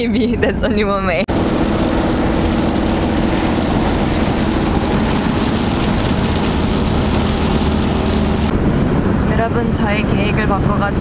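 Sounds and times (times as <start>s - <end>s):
engine low hum: 1.2s - 11.0s
strong wind: 1.2s - 11.0s
heavy rain rushing: 1.3s - 8.5s.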